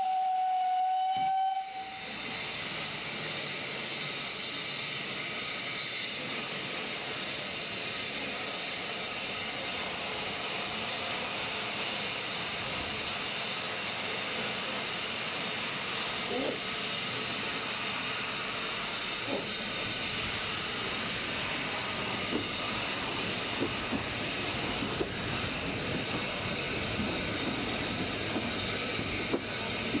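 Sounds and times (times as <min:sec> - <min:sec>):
steam locomotive whistle: 0:00.0 - 0:02.2
hiss of escaping steam: 0:01.7 - 0:30.0.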